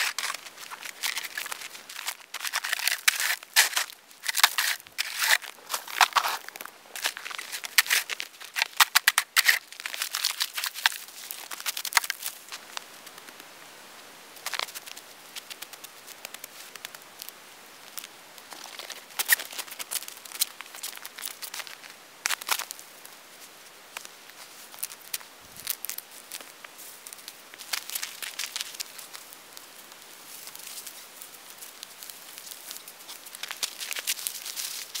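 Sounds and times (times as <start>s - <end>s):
snow crunching: 0.0s - 13.2s, 30.2s - 35.0s
twigs crackling: 0.0s - 13.5s, 14.4s - 23.2s, 23.9s - 35.0s.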